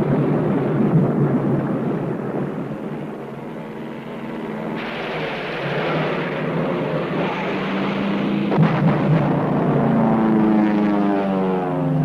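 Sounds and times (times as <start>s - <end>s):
propeller aircraft engines droning: 0.0s - 12.0s
sharp blasts: 4.7s - 10.8s
loud rushing noise: 4.7s - 10.9s.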